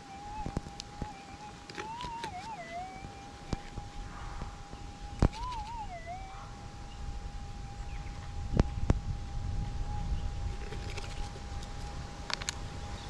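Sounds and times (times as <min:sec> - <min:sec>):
metal detector tone wavering: 0:00.0 - 0:09.0.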